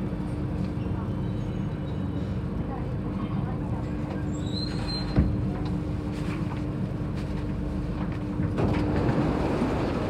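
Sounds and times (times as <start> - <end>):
train door sliding open: 8.1 - 10.0.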